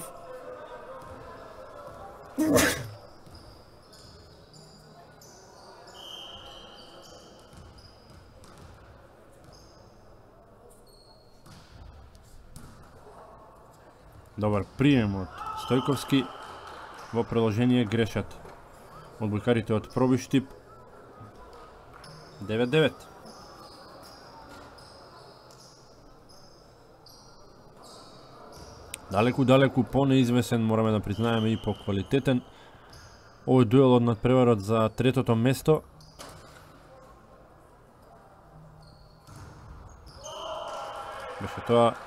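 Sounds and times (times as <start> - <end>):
sneakers squeaking: 1.9 - 13.0, 20.6 - 22.4, 23.0 - 29.1, 35.8 - 37.1, 38.6 - 40.7.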